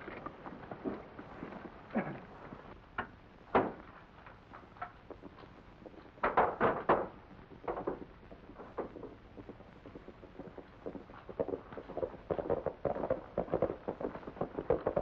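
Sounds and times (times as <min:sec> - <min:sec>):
sharp knocks and clatters: 0:03.0 - 0:03.9, 0:06.1 - 0:15.0.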